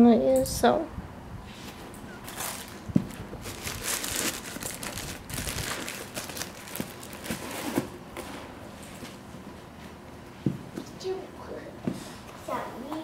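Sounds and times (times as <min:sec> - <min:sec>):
sneaker rustling and crinkling: 0:02.3 - 0:07.9.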